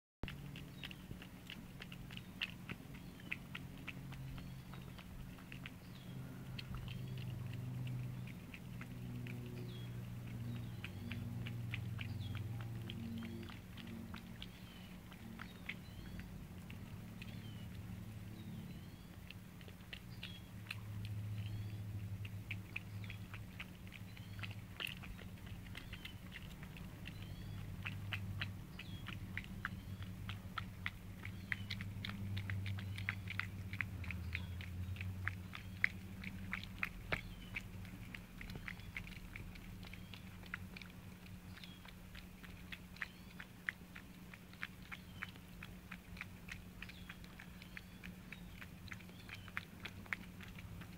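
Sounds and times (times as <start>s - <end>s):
cats chewing wet food: 0.2s - 50.9s
steady low hum: 0.2s - 50.9s.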